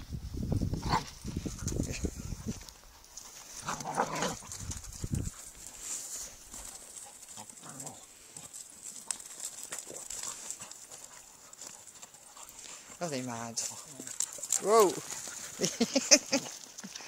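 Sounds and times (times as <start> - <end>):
dogs growling: 3.5 - 4.6, 7.0 - 8.6.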